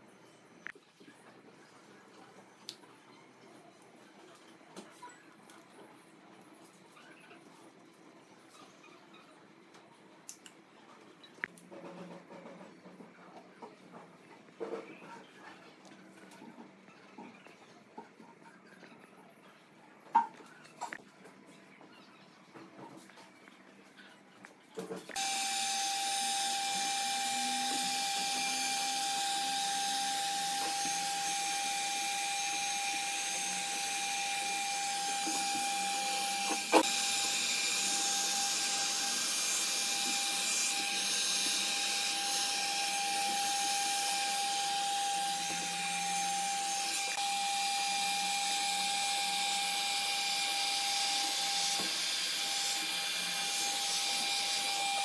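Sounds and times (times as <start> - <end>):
electric motor whining: 25.1 - 55.0.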